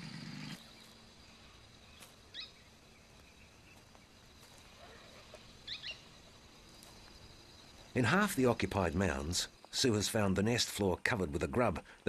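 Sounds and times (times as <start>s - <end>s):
high insect drone: 0.0s - 12.0s
short chirping calls: 1.9s - 3.5s, 4.9s - 6.1s.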